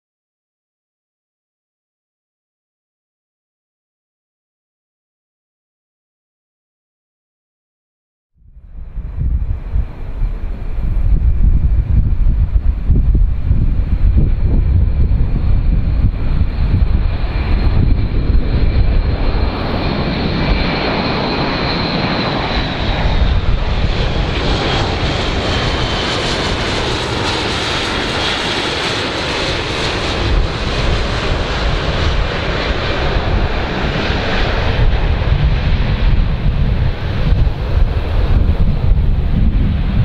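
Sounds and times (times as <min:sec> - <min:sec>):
propeller aircraft droning: 0:08.4 - 0:40.0.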